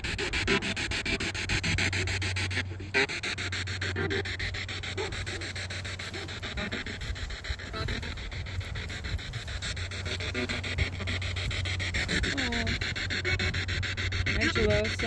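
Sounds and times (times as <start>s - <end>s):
steady low hum: 0.0s - 15.0s
stuttering radio static: 0.0s - 15.0s.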